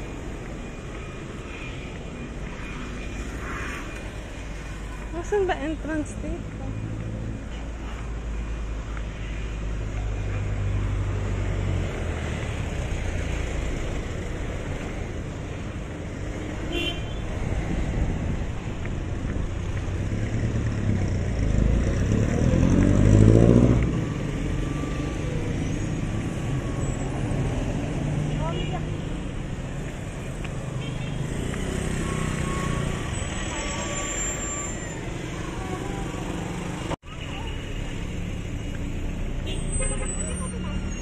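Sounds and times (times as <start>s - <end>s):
traffic rumble: 0.0s - 41.0s
vehicle engine passing close: 19.9s - 28.3s.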